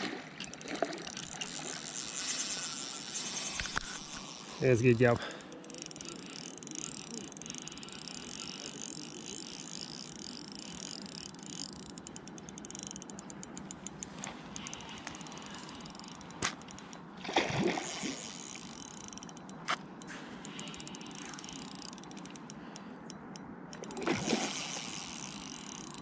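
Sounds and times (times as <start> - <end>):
fishing reel drag clicking: 0.1 - 17.0, 17.6 - 26.0
water splash: 17.2 - 18.2.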